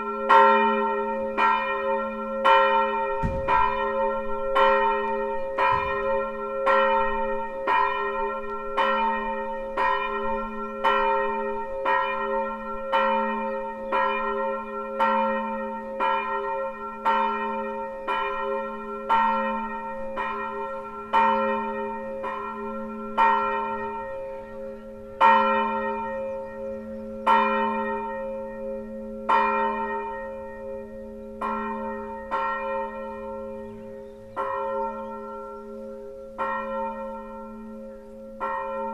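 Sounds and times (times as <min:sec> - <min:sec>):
swinging church bell ringing: 0:00.0 - 0:38.9.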